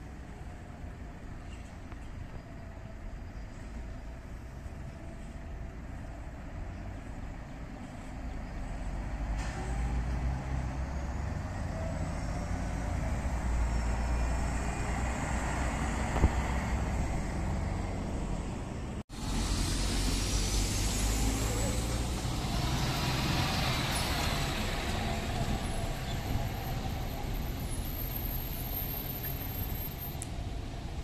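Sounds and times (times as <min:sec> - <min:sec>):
bus approaching with high whine: 0:00.0 - 0:31.0
bus engine and tyre noise: 0:00.0 - 0:31.0.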